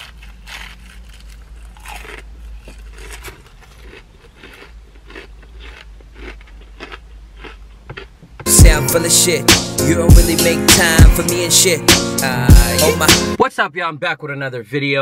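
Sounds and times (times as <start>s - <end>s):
crunchy chewing: 0.0s - 8.2s.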